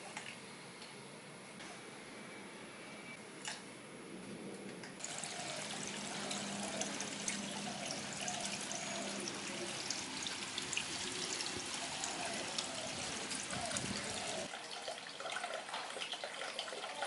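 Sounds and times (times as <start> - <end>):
water trickling into pond: 5.0 - 17.0.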